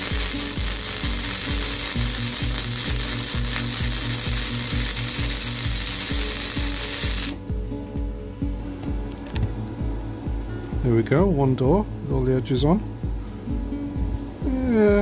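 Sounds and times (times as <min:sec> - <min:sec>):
welder arc crackling: 0:00.0 - 0:07.4
background music with beat: 0:00.0 - 0:15.0.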